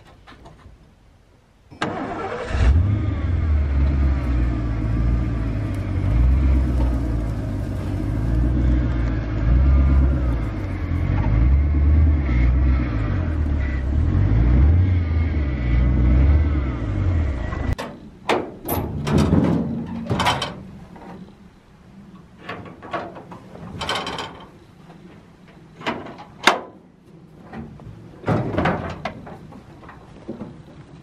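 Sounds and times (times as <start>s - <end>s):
truck engine running: 1.9s - 18.0s
metallic clanks of tailgate: 17.8s - 21.2s, 22.4s - 24.6s, 25.8s - 30.5s.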